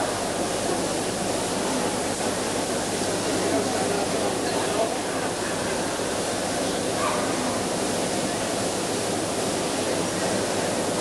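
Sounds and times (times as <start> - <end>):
murmur of crowd voices: 0.6 - 9.1.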